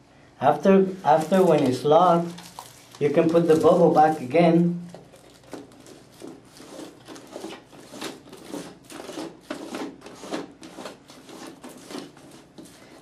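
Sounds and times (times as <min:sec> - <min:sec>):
plastic clicks and rustles: 0:01.2 - 0:03.8, 0:04.9 - 0:10.9.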